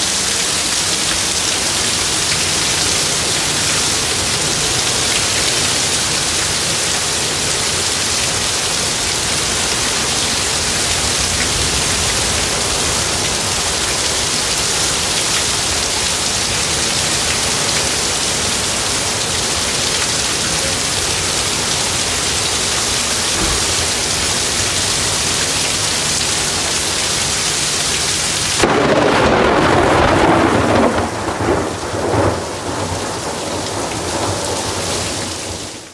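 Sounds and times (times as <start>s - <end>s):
heavy rain pouring: 0.0s - 35.9s
thunderclap rumbling: 28.6s - 35.6s.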